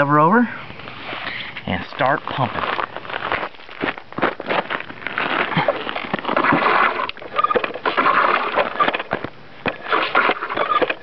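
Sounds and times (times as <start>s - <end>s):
hand air pump strokes: 4.4s - 11.0s.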